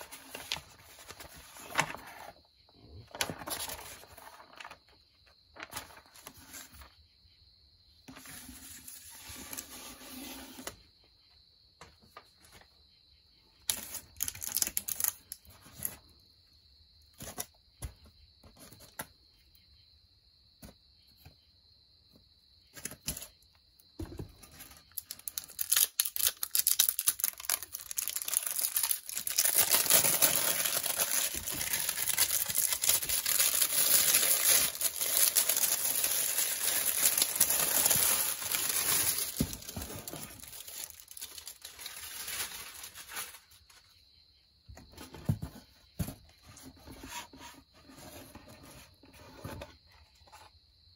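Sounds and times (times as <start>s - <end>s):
plastic packaging crinkling: 13.7s - 15.4s, 24.9s - 43.6s.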